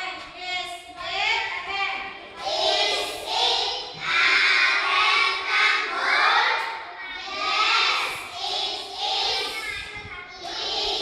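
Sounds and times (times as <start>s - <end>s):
children chanting in unison: 2.2s - 11.0s.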